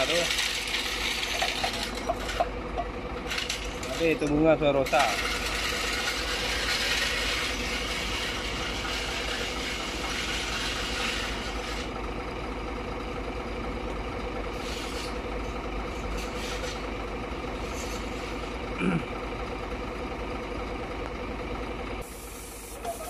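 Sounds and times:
hiss: 0:22.0 - 0:23.0.

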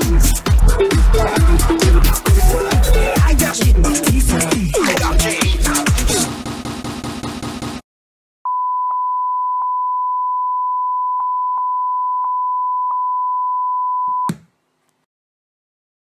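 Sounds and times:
electronic music: 0:00.0 - 0:06.5
steady test tone beep: 0:08.5 - 0:14.3.

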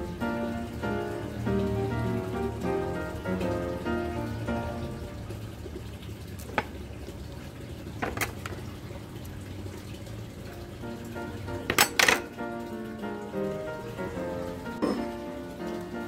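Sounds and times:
soft background music: 0:00.0 - 0:05.9, 0:10.3 - 0:16.0.

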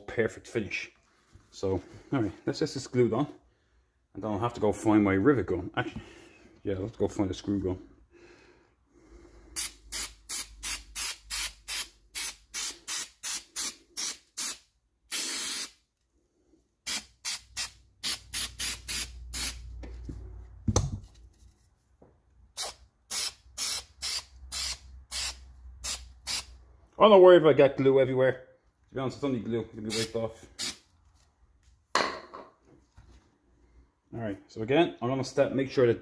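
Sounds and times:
aerosol can spraying: 0:09.6 - 0:15.8, 0:16.9 - 0:19.6, 0:22.6 - 0:26.5.

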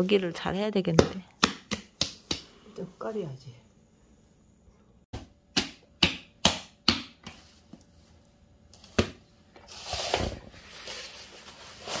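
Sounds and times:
hands slapping soybean mash: 0:01.0 - 0:02.5.

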